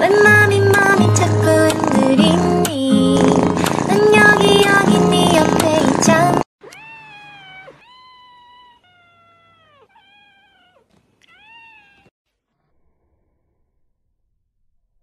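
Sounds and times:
cat meowing: 0:03.6 - 0:12.1.

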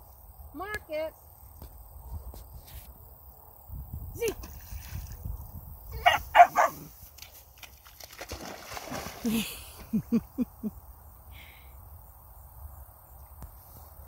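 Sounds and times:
puppy splashing and swimming: 0:04.2 - 0:05.4, 0:06.0 - 0:10.1
puppy yelping: 0:06.0 - 0:06.8.

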